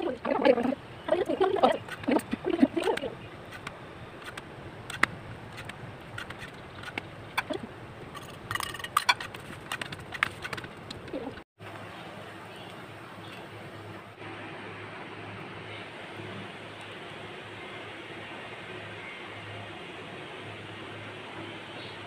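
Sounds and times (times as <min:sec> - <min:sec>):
person talking: 0:00.0 - 0:03.3
low steady hiss: 0:11.6 - 0:22.0.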